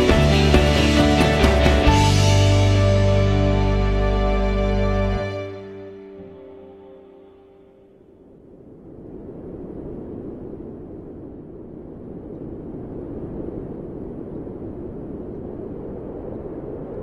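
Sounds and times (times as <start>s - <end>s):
low rumbling noise: 0.0s - 17.0s.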